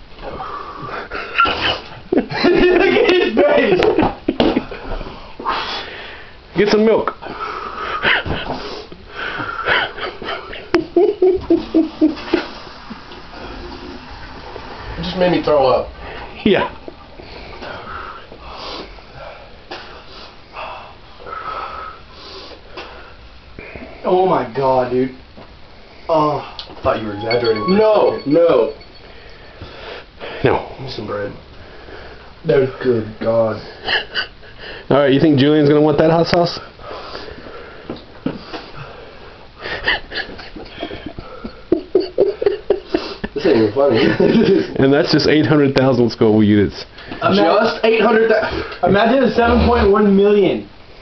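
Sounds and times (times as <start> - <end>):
person sniffing and wheezy breathing: 5.4 - 6.4, 7.3 - 9.7, 17.3 - 23.2, 42.8 - 43.4.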